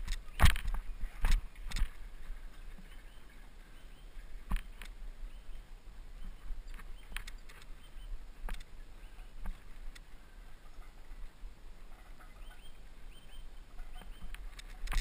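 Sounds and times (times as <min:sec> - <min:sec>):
bike knocking and rattling: 0:00.0 - 0:02.0
wind rumbling on microphone: 0:00.0 - 0:15.0.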